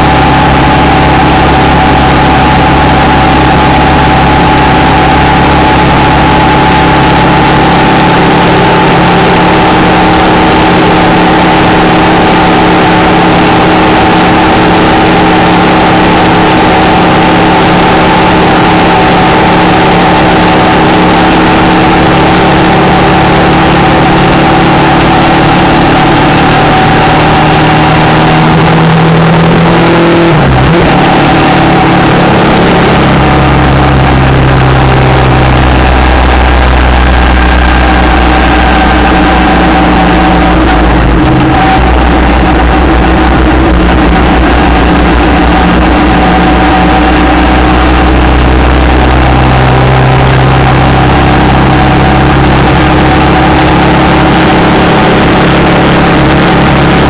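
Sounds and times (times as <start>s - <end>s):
deep low hum: 0.0s - 57.0s
motorcycle engine running: 0.0s - 57.0s
road noise: 0.0s - 57.0s
wind rush: 33.2s - 50.8s.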